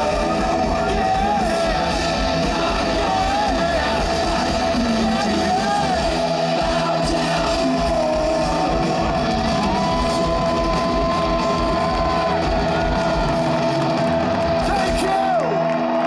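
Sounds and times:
industrial rock band playing: 0.0s - 16.0s.

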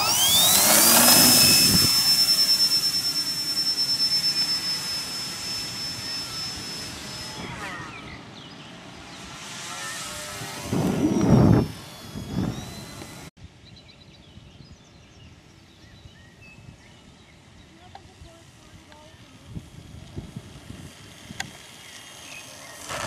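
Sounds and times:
model plane motor whining: 0.0s - 13.3s, 18.8s - 23.0s.

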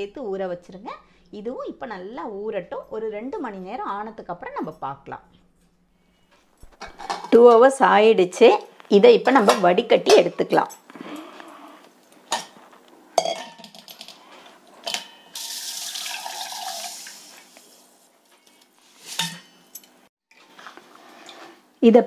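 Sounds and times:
water poured through strainer splashing: 15.4s - 17.8s.

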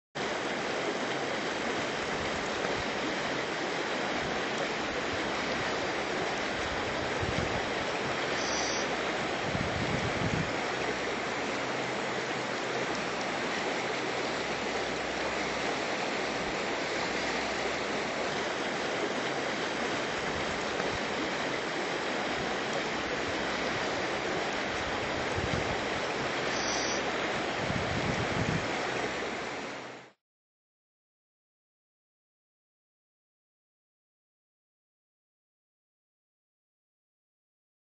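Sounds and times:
river water rushing over stones: 0.2s - 30.2s.

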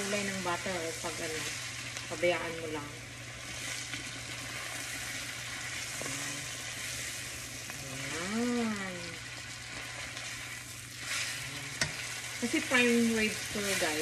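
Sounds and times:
steak sizzling in a frying pan: 0.0s - 14.0s
person humming: 6.0s - 6.6s, 7.7s - 9.2s, 11.4s - 11.8s.

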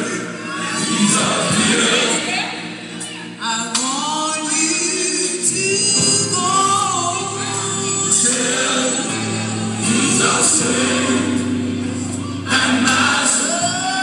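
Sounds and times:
gospel singing: 0.0s - 14.0s
sustained bass line: 5.4s - 14.0s.

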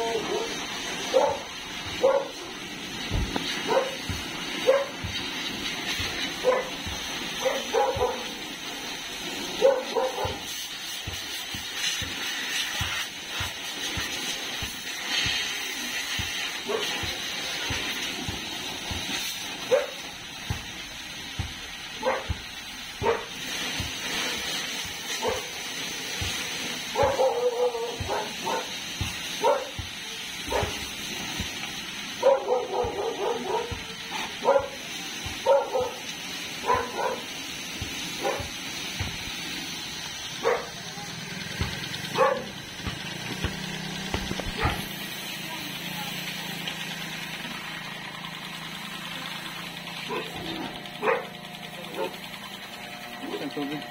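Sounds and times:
dog barking: 0.0s - 2.5s, 3.4s - 5.3s, 5.9s - 8.5s, 9.5s - 10.6s, 16.1s - 18.0s, 19.6s - 20.1s, 22.0s - 22.4s, 23.0s - 23.4s, 24.9s - 25.8s, 26.9s - 30.9s, 32.2s - 37.4s, 38.1s - 38.6s, 40.4s - 40.8s, 42.1s - 42.6s, 44.4s - 44.9s, 50.0s - 52.2s
pressure washer spraying water: 0.0s - 53.9s.

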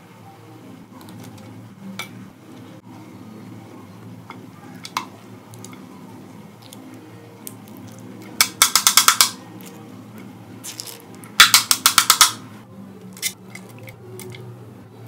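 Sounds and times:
metal spoon clicking on steel tray: 8.4s - 9.4s, 11.4s - 12.4s.

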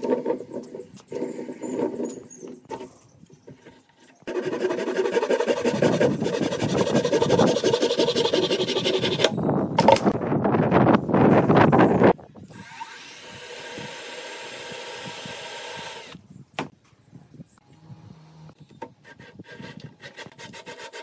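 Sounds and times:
wooden creaking and rubbing: 0.0s - 9.4s
hand saw cutting wood: 4.3s - 9.3s, 19.0s - 21.0s.

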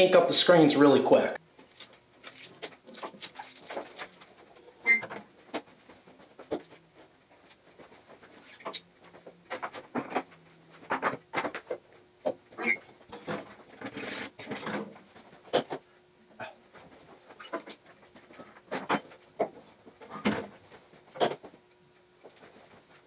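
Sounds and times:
plastic film pulled off: 1.6s - 4.4s
tape peeling: 1.6s - 4.4s
handling clicks and knocks: 1.6s - 6.8s.

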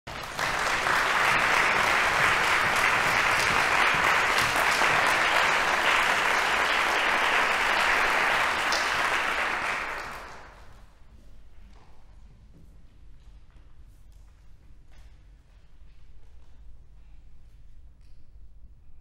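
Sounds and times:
audience applauding: 0.1s - 10.8s.

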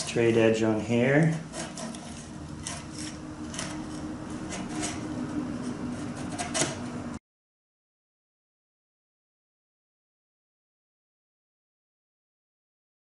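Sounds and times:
chisel scraping wood: 0.0s - 0.3s, 0.9s - 7.2s
steady low hum: 0.0s - 7.2s.

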